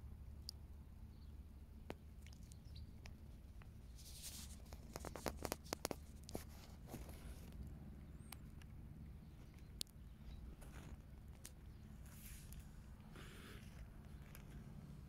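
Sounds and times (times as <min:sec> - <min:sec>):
low background rumble: 0:00.0 - 0:15.0
soft rustles: 0:03.3 - 0:07.8, 0:10.2 - 0:15.0.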